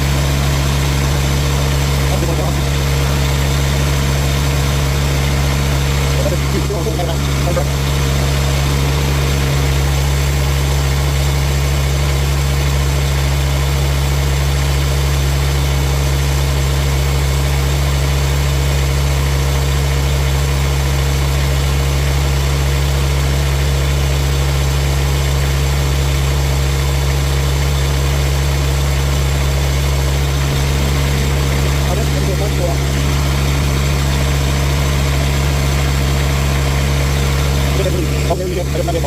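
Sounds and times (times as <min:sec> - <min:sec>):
excavator engine idling: 0:00.0 - 0:39.0.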